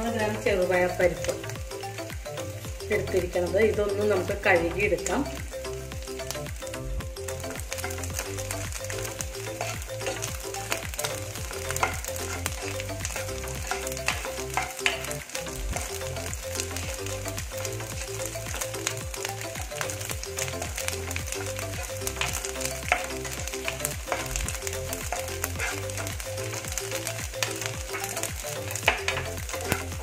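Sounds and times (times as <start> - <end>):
coconut sizzling in a frying pan: 0.0 - 30.0
soft background music: 0.0 - 30.0
wooden spatula scraping a pan: 8.8 - 16.0, 20.6 - 28.2, 28.8 - 30.0.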